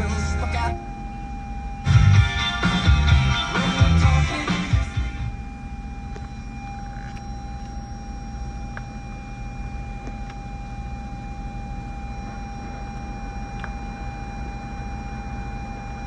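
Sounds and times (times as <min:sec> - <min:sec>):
thin steady whine: 0:00.0 - 0:16.0
car cabin rush and hum: 0:04.0 - 0:15.0.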